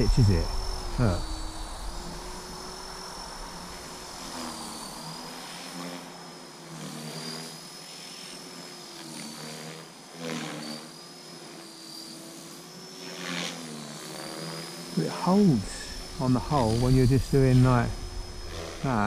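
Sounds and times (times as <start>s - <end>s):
rushing noise: 0.0s - 5.1s, 15.3s - 19.0s
model helicopter motor whine: 0.0s - 19.0s.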